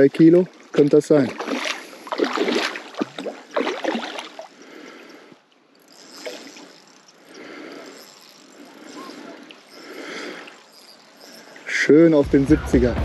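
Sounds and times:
fish splashing in water: 1.2 - 4.9.

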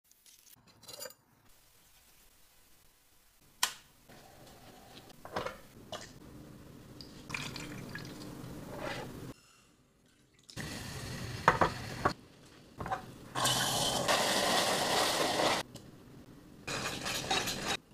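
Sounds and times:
liquid pouring and sloshing: 7.2 - 8.4, 10.0 - 10.6.

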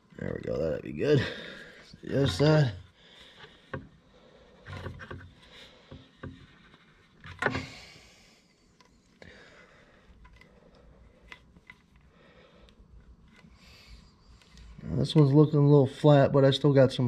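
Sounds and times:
rubber hose rubbing and scraping: 0.0 - 7.9.

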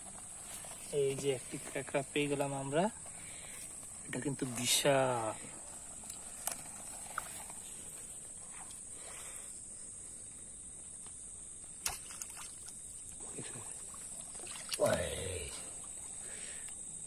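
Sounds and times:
high-pitched insect chorus: 0.0 - 17.0
spear jabbing into water: 11.8 - 12.7
shallow water sloshing: 11.8 - 16.4.

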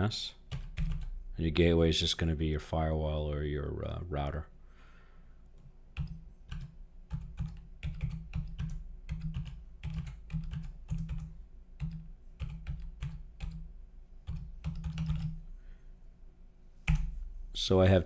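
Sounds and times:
typing on computer keyboard: 0.5 - 1.1, 6.0 - 15.4.

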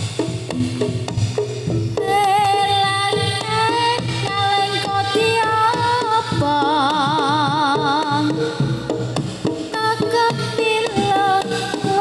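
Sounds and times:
gamelan ensemble playing: 0.0 - 3.2
drum strokes: 0.0 - 12.0.

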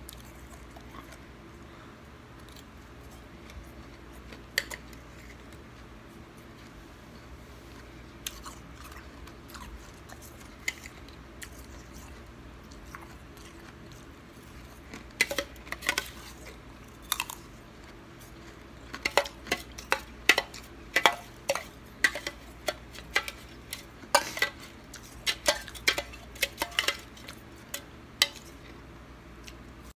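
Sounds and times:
spoon scraping metal bowl: 19.0 - 27.4.

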